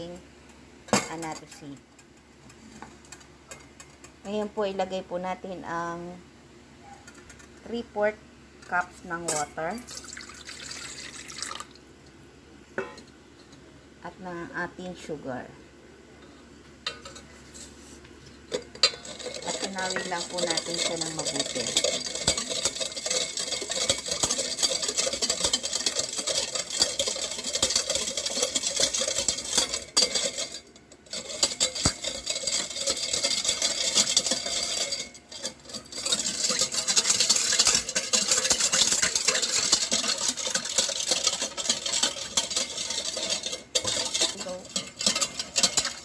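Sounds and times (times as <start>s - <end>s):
utensil stirring in a bowl: 16.9s - 46.0s.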